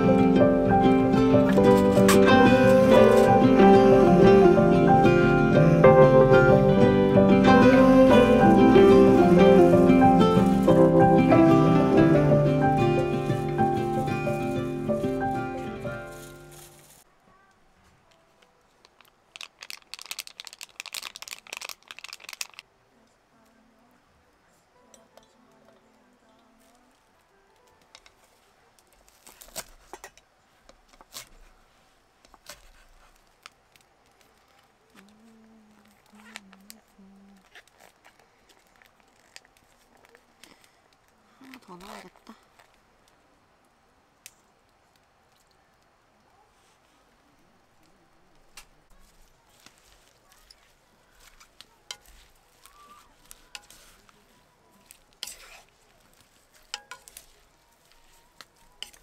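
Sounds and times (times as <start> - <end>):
low hum: 0.0 - 16.7
scraping rustle: 13.0 - 17.1, 28.0 - 33.5, 48.9 - 59.0
utensils and dishes clicking: 56.6 - 57.4, 58.8 - 59.0.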